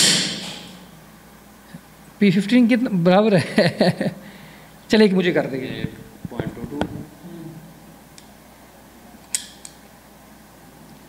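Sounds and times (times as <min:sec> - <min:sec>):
murmured voice: 0:05.6 - 0:07.8.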